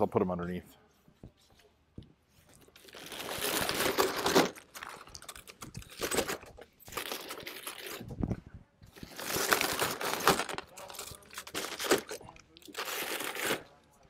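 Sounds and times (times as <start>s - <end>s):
plastic wrap crinkling: 2.5s - 8.3s, 8.9s - 14.0s.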